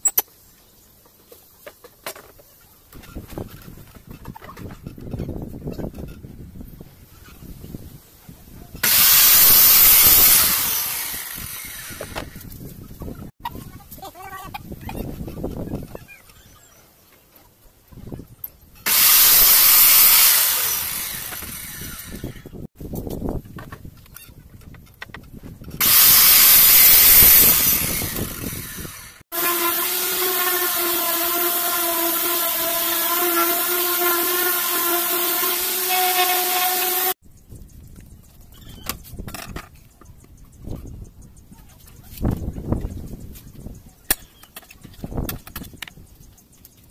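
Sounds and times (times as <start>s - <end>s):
miter saw running: 8.8s - 12.4s, 18.9s - 22.6s, 25.8s - 37.2s
orbital sander whining on wood: 8.8s - 12.4s, 18.9s - 22.6s, 25.8s - 37.2s.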